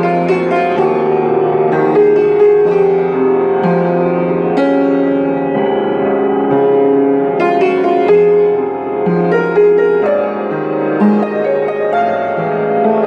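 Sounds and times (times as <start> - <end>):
slow piano music: 0.0 - 13.0.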